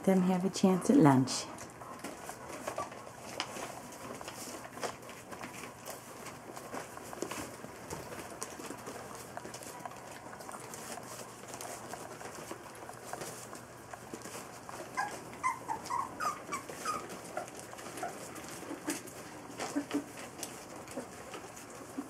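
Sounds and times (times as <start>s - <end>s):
paws pattering on newspaper: 0.3s - 22.0s
puppies whimpering: 14.3s - 22.0s.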